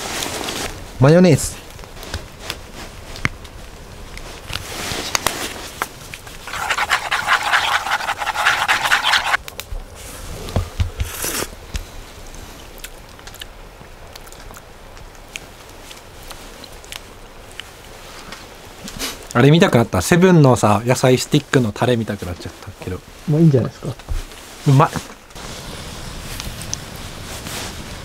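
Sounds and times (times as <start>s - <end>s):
finely pulsing scraping: 6.4s - 9.4s.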